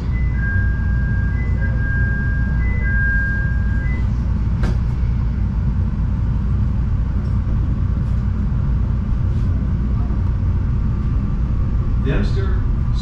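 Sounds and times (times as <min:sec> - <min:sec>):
two-tone electronic chime: 0:00.0 - 0:04.2
train wheels rumbling on rail: 0:00.0 - 0:13.0.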